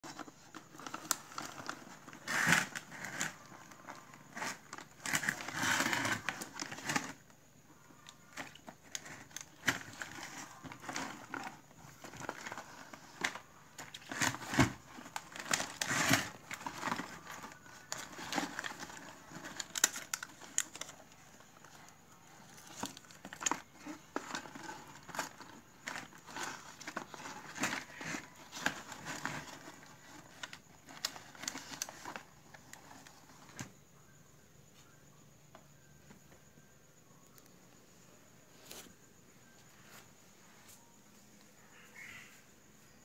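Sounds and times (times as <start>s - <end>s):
plastic wrappers crinkling in a bin: 0.0s - 7.2s, 8.3s - 33.6s.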